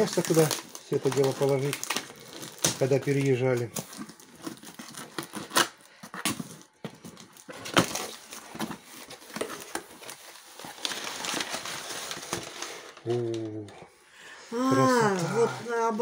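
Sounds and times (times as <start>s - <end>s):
packing paper rustling: 0.0s - 13.7s.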